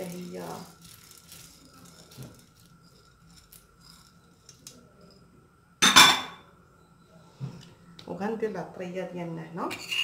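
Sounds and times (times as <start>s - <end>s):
dry lentils poured into metal pot: 0.0s - 4.7s.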